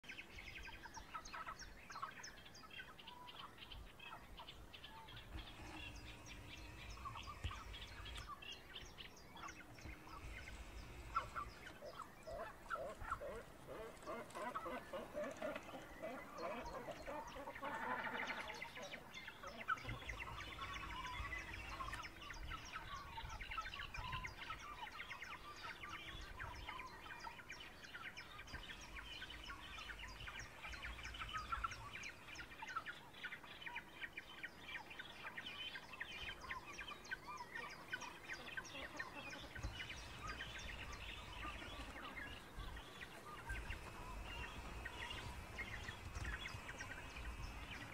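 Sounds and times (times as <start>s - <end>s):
birds chirping and twittering: 0.0s - 47.9s
wind rumbling on microphone: 3.8s - 14.2s, 19.8s - 24.8s, 39.4s - 47.9s.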